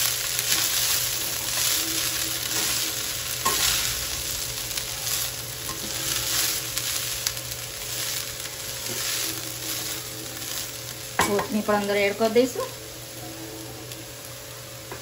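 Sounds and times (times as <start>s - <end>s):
light sizzle of frying: 0.0s - 15.0s
spatula scraping a pan: 0.4s - 4.0s, 5.0s - 11.4s.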